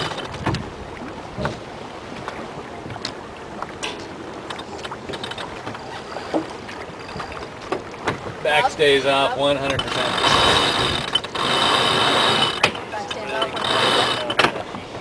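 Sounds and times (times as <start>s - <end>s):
water rushing: 0.0s - 15.0s.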